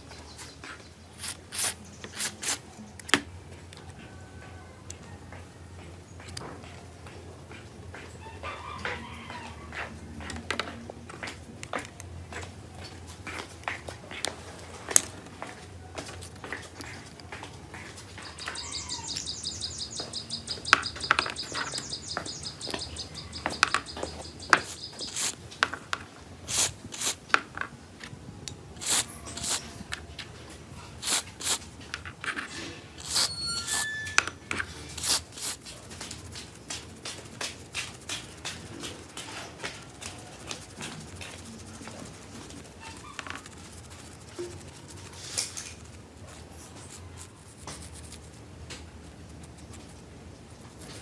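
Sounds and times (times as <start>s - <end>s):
birds chirping: 16.4s - 26.4s.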